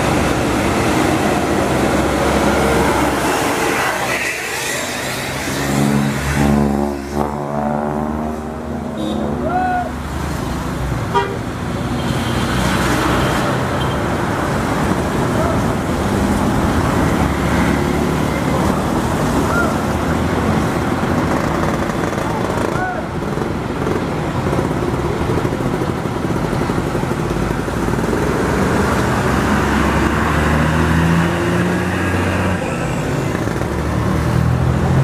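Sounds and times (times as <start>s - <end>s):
passing traffic: 0.0s - 35.0s
vehicle horn: 8.9s - 9.4s, 11.1s - 11.5s.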